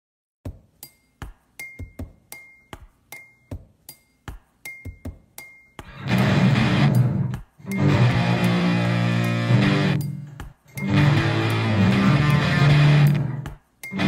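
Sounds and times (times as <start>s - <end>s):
clinking percussion hits: 0.8s - 14.0s
rock band playing: 5.9s - 10.2s, 10.8s - 13.4s
distorted electric bass: 5.9s - 13.5s.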